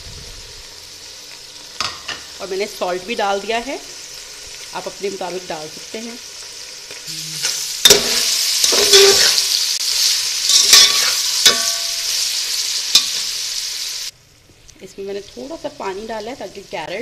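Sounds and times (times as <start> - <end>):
food sizzling in a pot: 0.0 - 17.0
metal spatula scraping a pot: 7.8 - 9.4, 10.5 - 12.1.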